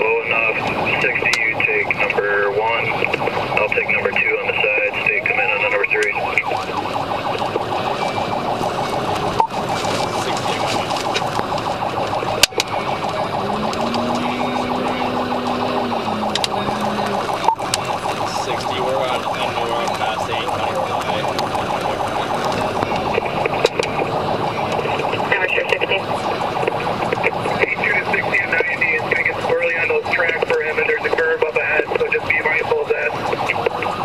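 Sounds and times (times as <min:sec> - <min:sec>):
police siren: 0:00.0 - 0:34.0
road and engine noise: 0:00.0 - 0:34.0.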